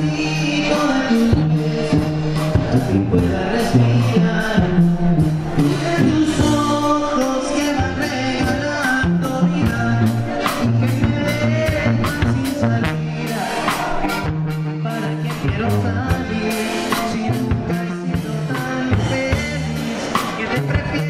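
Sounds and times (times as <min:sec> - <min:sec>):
drum kit beat: 0:00.0 - 0:21.0
sousaphone bass line: 0:00.0 - 0:21.0.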